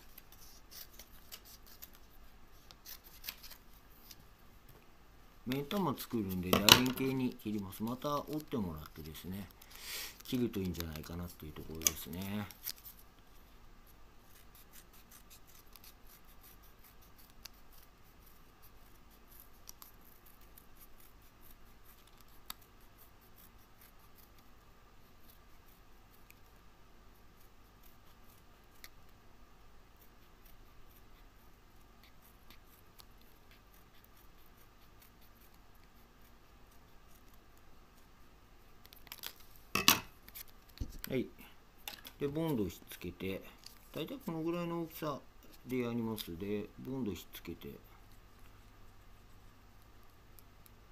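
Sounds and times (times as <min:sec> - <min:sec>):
scissors snipping paper: 0:00.0 - 0:04.2, 0:05.5 - 0:13.0, 0:14.3 - 0:24.5, 0:38.8 - 0:39.5.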